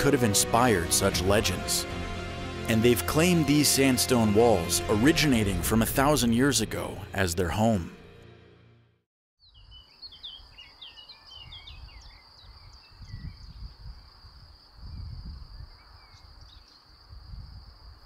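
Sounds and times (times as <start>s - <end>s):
birds chirping: 9.4s - 13.7s.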